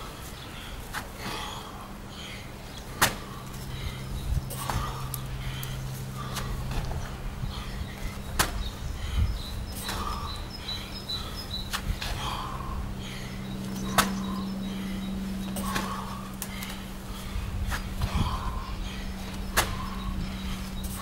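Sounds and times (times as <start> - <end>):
low hum: 0.0 - 21.0
hands and feet landing on gravel: 8.0 - 8.7, 13.6 - 14.4, 15.5 - 16.8, 19.3 - 20.0.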